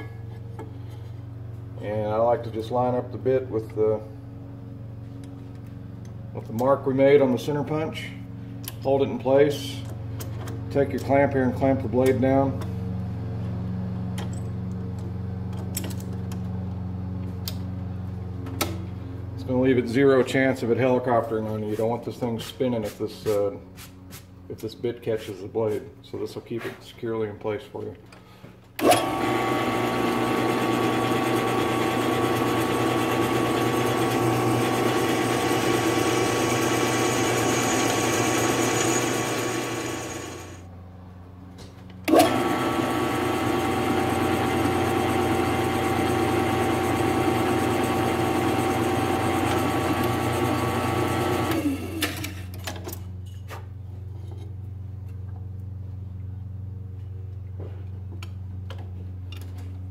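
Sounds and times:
drill press cutting steel: 0:28.8 - 0:40.6
drill press motor running: 0:28.8 - 0:40.7, 0:42.1 - 0:52.3.

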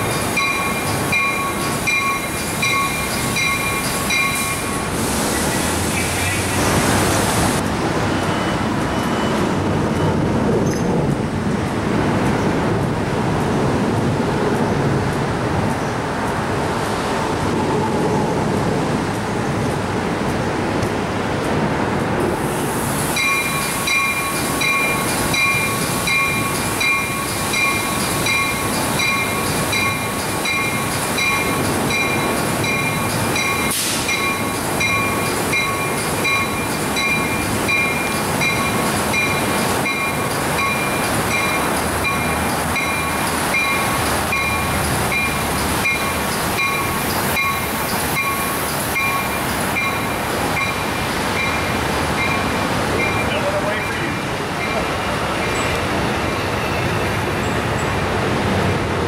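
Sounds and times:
train bell ringing: 0:00.0 - 0:05.0, 0:23.1 - 0:55.6
train running rumble: 0:00.0 - 0:59.0.

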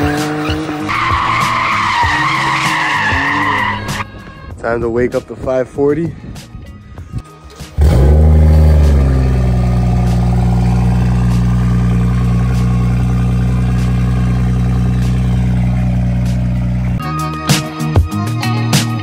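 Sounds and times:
car engine starting and idling: 0:07.3 - 0:17.0.

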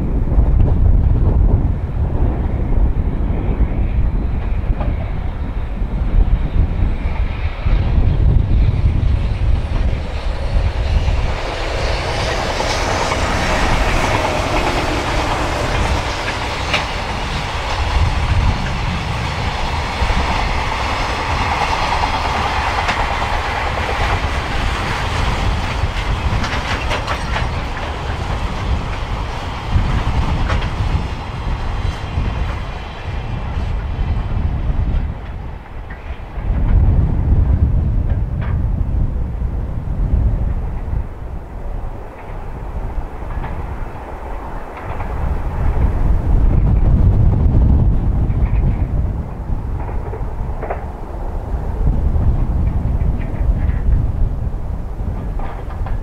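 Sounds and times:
freight train rolling past: 0:00.0 - 0:56.0
train wheels clattering over rail joints: 0:08.9 - 0:33.9, 0:34.8 - 0:38.7, 0:41.9 - 0:54.0, 0:55.0 - 0:56.0.

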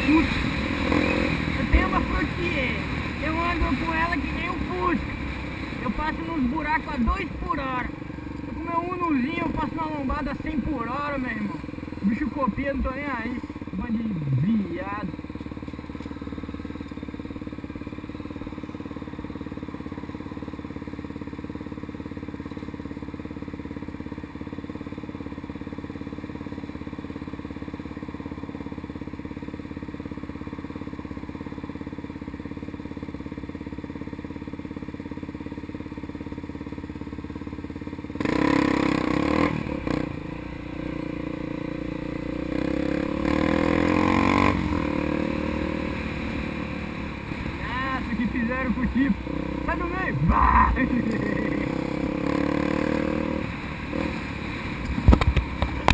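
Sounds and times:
motorcycle engine idling: 0:00.0 - 0:55.9
motorcycle engine revving: 0:00.0 - 0:55.9.

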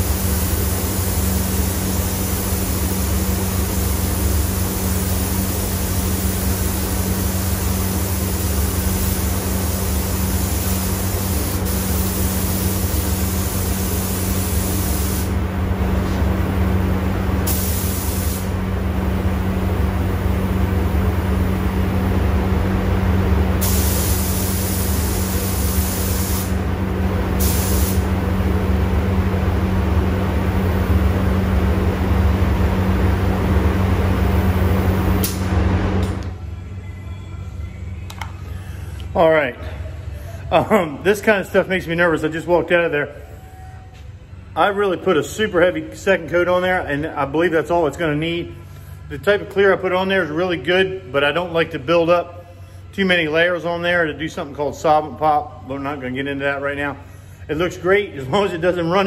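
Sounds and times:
spray gun hissing: 0:00.0 - 0:15.4, 0:17.4 - 0:18.6, 0:23.6 - 0:26.6, 0:27.4 - 0:28.1
steady low hum: 0:00.0 - 0:59.0.

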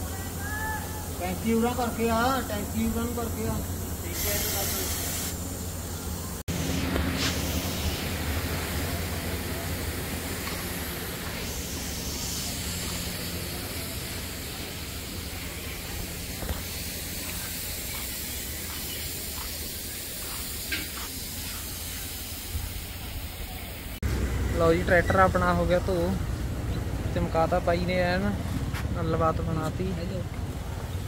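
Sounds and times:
spray gun hissing: 0:00.1 - 0:24.0.

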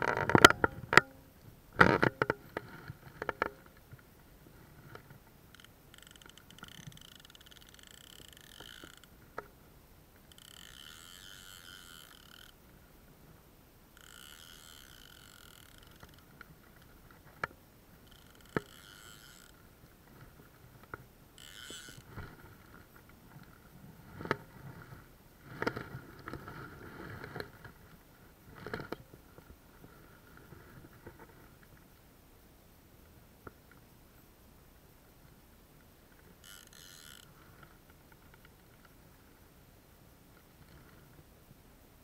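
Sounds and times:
frog calls: 0:05.5 - 0:09.1.

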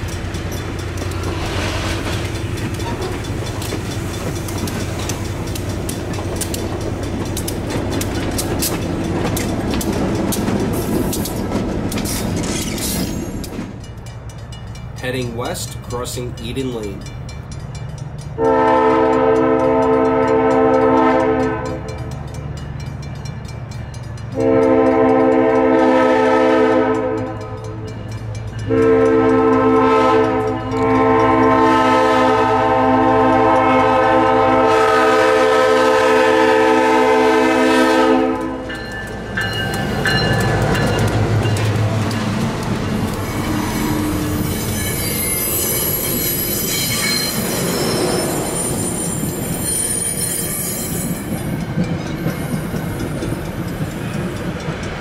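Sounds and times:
wheels clicking over rail joints: 0:00.0 - 0:25.9, 0:37.6 - 0:55.0
locomotive engine rumble: 0:00.0 - 0:49.6
locomotive air horn blasts: 0:18.4 - 0:22.1, 0:24.3 - 0:27.8, 0:28.7 - 0:38.8, 0:43.3 - 0:44.6
thin high squeal: 0:43.4 - 0:51.2.

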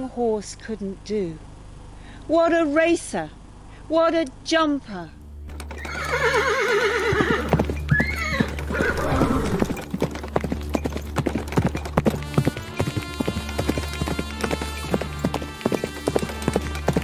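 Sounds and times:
steady low hum: 0:00.0 - 0:05.6
hoofbeats: 0:05.4 - 0:17.0
horse whinnying: 0:05.5 - 0:09.9.

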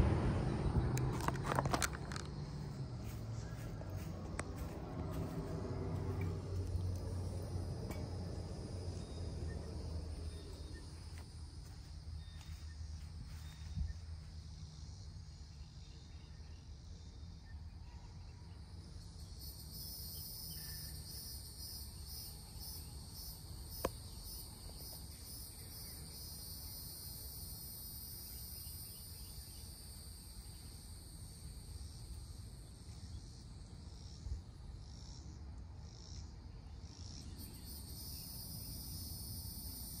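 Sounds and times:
faint low rumble: 0:00.0 - 0:15.0
insects trilling: 0:00.0 - 0:40.0.

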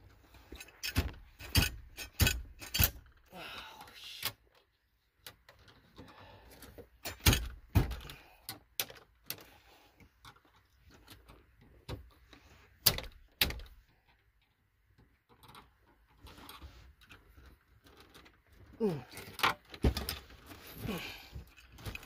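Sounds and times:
plastic knocks and clunks: 0:07.1 - 0:08.2, 0:19.3 - 0:20.4.

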